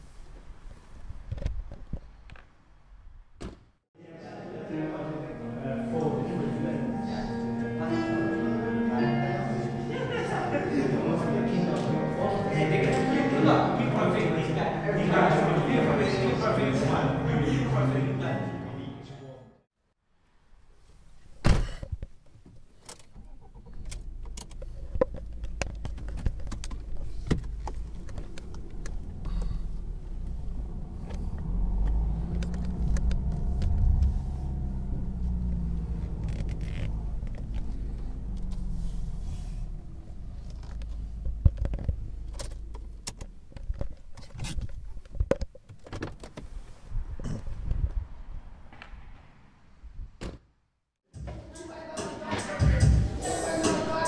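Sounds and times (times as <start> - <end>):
motor vehicle engine rumble: 21.2 - 50.2.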